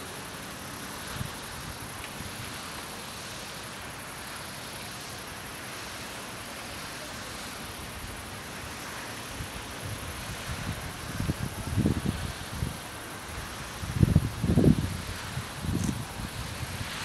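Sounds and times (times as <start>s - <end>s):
outdoor background hiss: 0.0s - 17.0s
low wind rumble: 9.3s - 17.0s.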